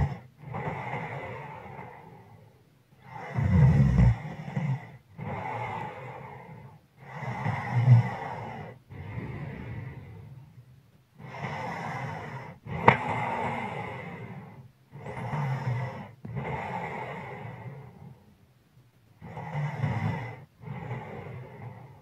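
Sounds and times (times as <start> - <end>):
person breathing heavily snoring: 0.0 - 10.6, 11.2 - 18.3, 19.2 - 22.0.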